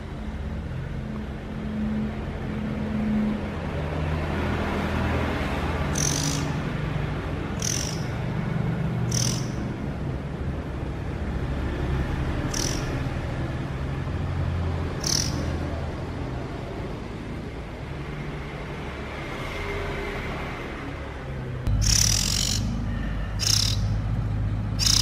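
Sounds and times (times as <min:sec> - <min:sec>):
bird cheeping: 0:05.9 - 0:06.6, 0:07.5 - 0:08.3, 0:09.0 - 0:09.7, 0:12.5 - 0:13.1, 0:15.0 - 0:15.6, 0:21.7 - 0:24.1, 0:24.7 - 0:25.0.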